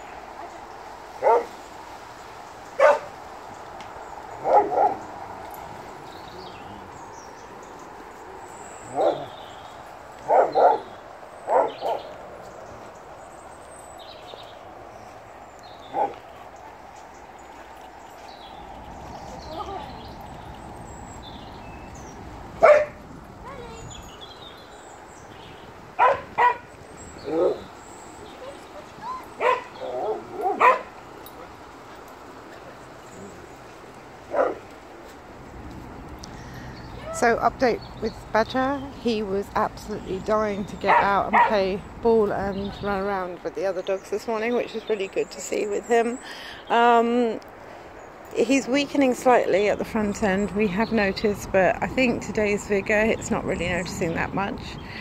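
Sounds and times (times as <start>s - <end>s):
dogs barking: 1.2s - 1.6s, 2.7s - 3.2s, 4.3s - 5.7s, 8.8s - 9.4s, 10.2s - 12.2s, 15.8s - 16.8s, 22.6s - 23.6s, 26.0s - 27.8s, 28.4s - 31.6s, 34.2s - 34.7s, 40.8s - 41.6s.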